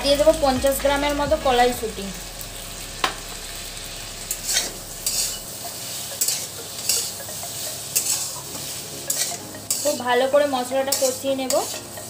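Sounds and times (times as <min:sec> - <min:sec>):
frying oil sizzling: 0:00.0 - 0:12.0
metal spatula scraping a pan: 0:04.2 - 0:12.0.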